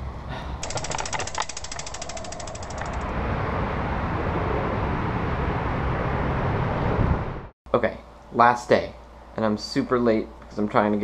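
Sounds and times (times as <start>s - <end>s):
bicycle freewheel ticking: 0.6s - 3.2s
rushing noise with low rumble: 0.6s - 7.5s.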